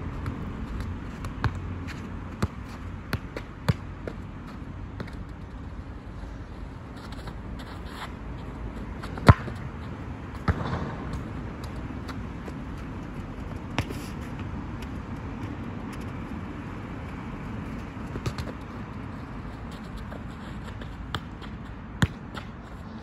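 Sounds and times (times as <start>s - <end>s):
low background noise: 0.0s - 23.0s
football kicked: 9.1s - 9.6s, 10.4s - 12.5s, 18.1s - 18.8s, 21.0s - 22.5s.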